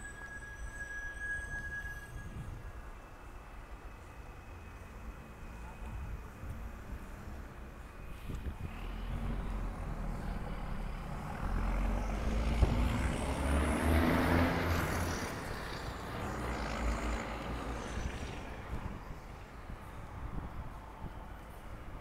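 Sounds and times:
faint high whine: 0.0s - 10.9s
vehicle engine rumble and road noise: 2.2s - 22.0s.

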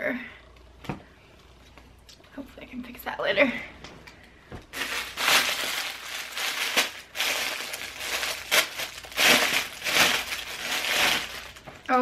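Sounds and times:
plastic bag crinkling: 4.7s - 12.0s.

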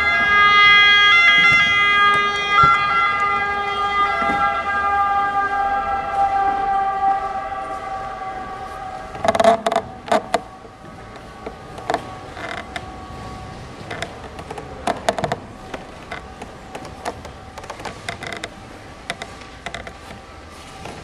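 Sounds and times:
wooden boards creaking: 0.0s - 4.7s, 9.1s - 21.0s.

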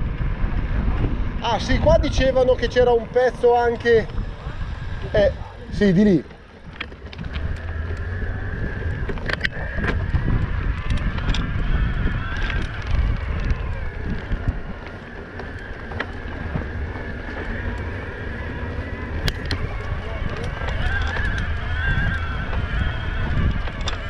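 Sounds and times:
high wavering motor whine: 0.0s - 24.0s
tyres rumbling on gravel: 0.0s - 24.0s
wind buffeting microphone: 0.0s - 24.0s
clicks from stones and bike: 3.2s - 24.0s.

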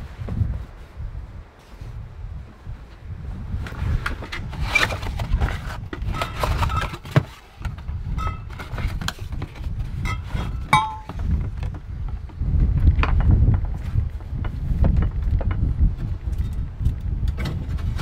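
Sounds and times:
cardboard rustling and scraping: 3.7s - 11.6s.

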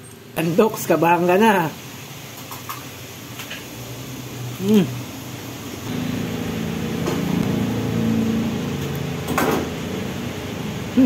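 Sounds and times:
low machine hum: 3.8s - 11.0s.

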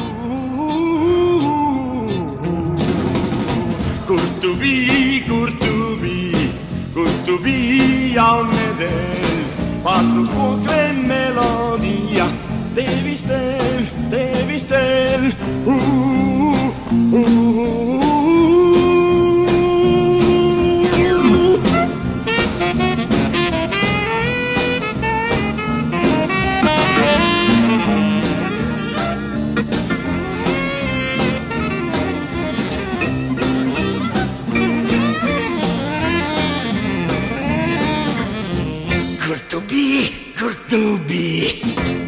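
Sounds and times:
instrumental band music: 0.0s - 39.5s, 41.6s - 42.0s.

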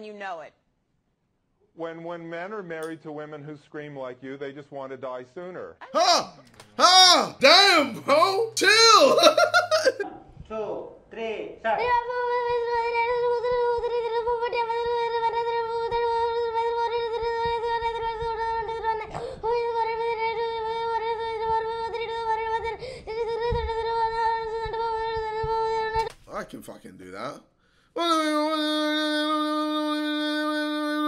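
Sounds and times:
boy counting rapidly: 5.9s - 9.3s.

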